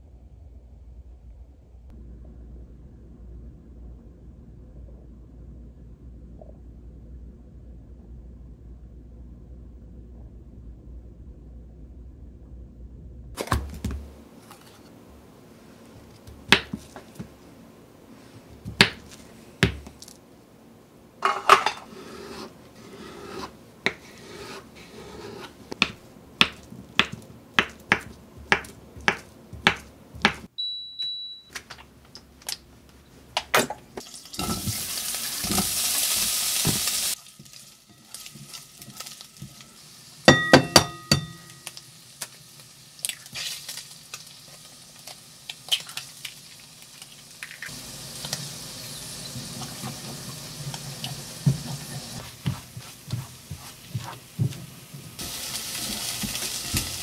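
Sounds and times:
knife chopping on wooden board: 23.0 - 30.5
short electronic beep: 30.6 - 31.5
ringing clinks against pan: 40.3 - 41.6.

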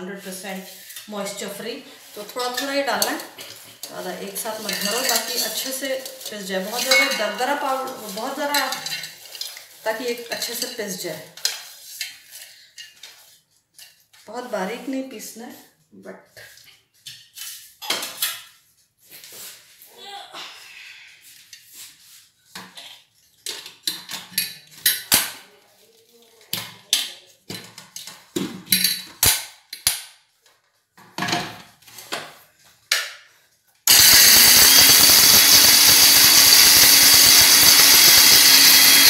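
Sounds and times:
coconut pieces clattering in steel jar: 3.8 - 9.4
mixer grinder motor grinding: 33.9 - 39.0.

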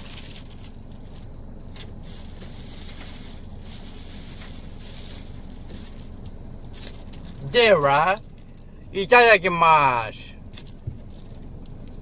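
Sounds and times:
plastic packaging crinkling: 0.0 - 7.4
low background hum: 0.0 - 12.0.

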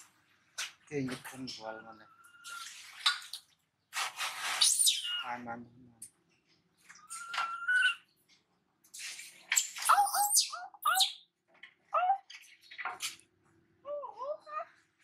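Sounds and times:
water splashing in a metal basin: 2.3 - 3.6
baby monkey squeaking: 4.6 - 5.3, 7.0 - 8.0, 9.8 - 11.2.

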